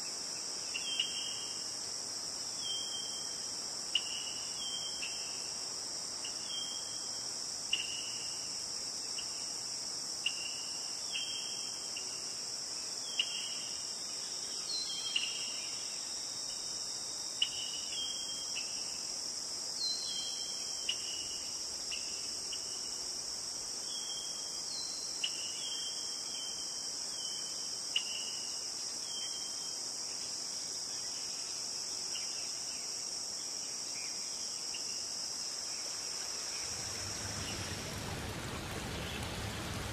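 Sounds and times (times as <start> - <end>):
cricket chirps: 0.0 - 39.9
crickets trilling: 0.0 - 39.9.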